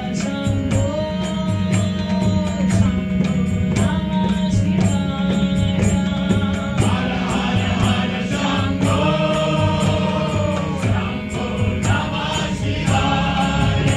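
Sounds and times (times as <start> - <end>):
harmonium drone: 0.0 - 13.9
drum beat: 1.6 - 13.9
group chanting: 6.8 - 13.9.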